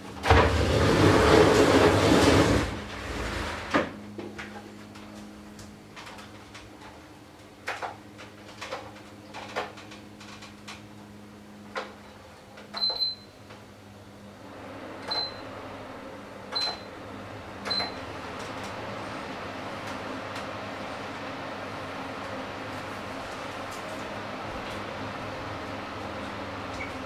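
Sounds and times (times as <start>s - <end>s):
fan running with airy rush: 0.0s - 27.0s
knocks and clicks handling fan: 3.7s - 13.7s, 16.5s - 16.9s, 17.6s - 19.0s, 19.7s - 21.3s.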